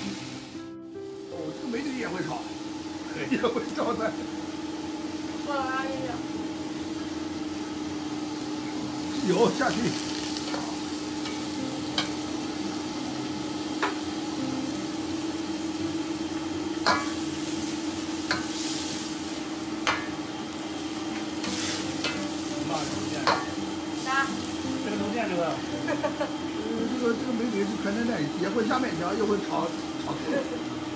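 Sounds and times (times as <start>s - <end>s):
wok sizzling: 0.0s - 30.9s
spatula scraping wok: 16.8s - 24.7s.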